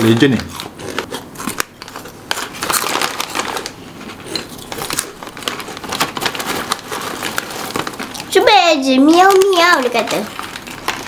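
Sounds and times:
crunchy snack being chewed: 0.4 - 8.3.

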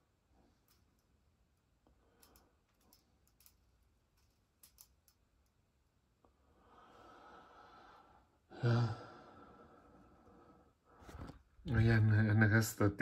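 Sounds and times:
person breathing out: 6.5 - 11.2
person sighing: 8.5 - 9.6.

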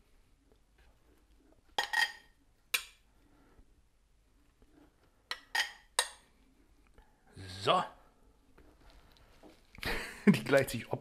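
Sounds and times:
table knife scraping and clinking: 1.8 - 2.4, 5.3 - 6.2.

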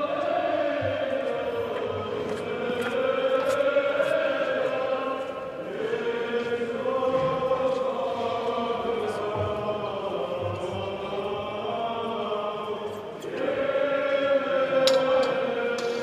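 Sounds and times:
choir chanting a hymn: 0.0 - 16.0.

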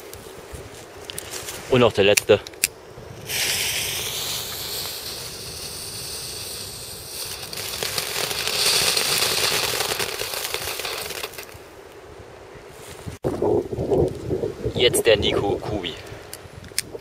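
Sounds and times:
firework fountain hissing: 3.0 - 11.7
firework crackling: 3.0 - 11.8.

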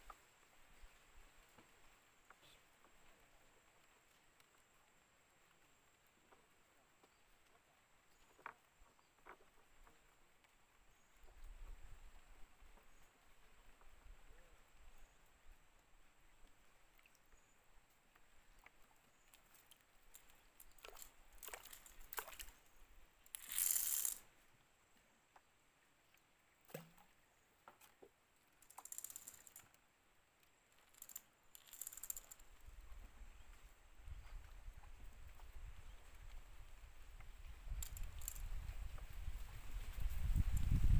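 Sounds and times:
fishing reel clicks: 23.3 - 24.2, 28.6 - 29.7, 30.9 - 32.4, 37.8 - 38.5.

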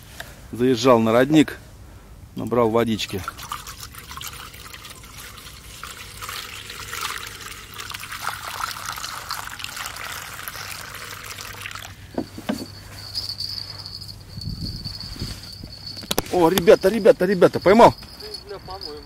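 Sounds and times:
water pouring into kettle: 3.2 - 12.0
steady high-pitched tone: 12.2 - 19.0.

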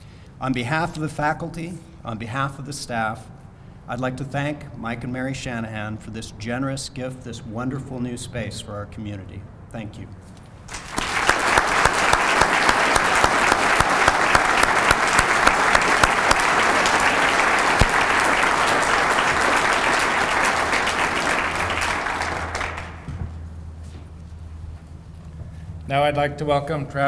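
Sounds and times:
audience applauding: 10.7 - 23.1.

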